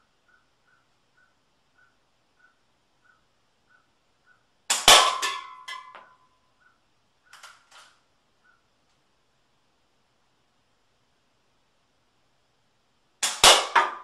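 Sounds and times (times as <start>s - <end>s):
bb gun shot: 13.2s - 14.0s.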